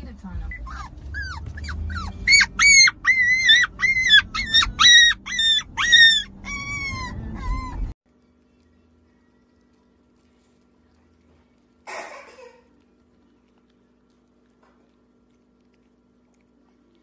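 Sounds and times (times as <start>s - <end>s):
faint hum: 0.0s - 17.0s
low background rumble: 0.0s - 17.0s
puppy howling: 0.5s - 8.0s.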